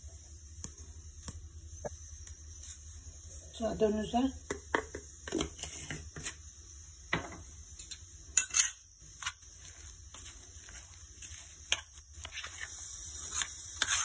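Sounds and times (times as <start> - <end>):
spoon scraping metal jar: 7.8 - 9.3, 11.7 - 14.0.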